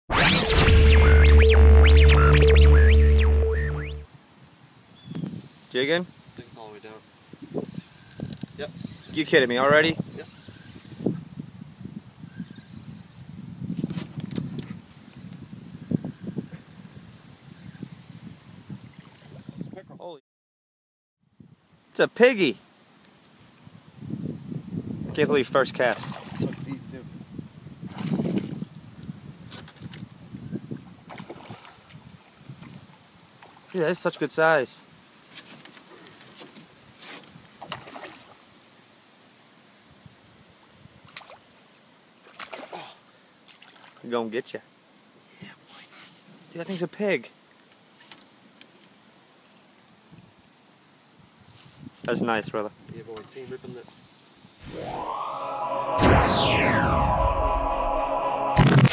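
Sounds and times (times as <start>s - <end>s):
fishing reel whirring and ticking: 7.6s - 13.6s, 14.9s - 18.2s
faint water lapping and trickling: 7.7s - 19.6s, 25.8s - 27.0s, 29.6s - 34.3s, 35.1s - 39.0s, 40.6s - 46.5s, 47.3s - 52.0s.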